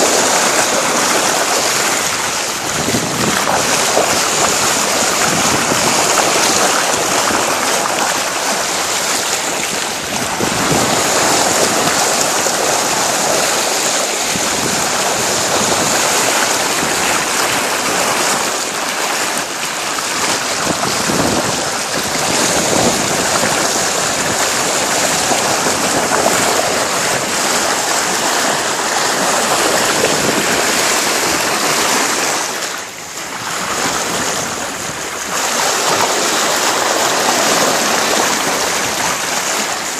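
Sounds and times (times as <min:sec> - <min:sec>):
bow wave rushing along hull: 0:00.0 - 0:39.9
wind on microphone: 0:00.0 - 0:39.9.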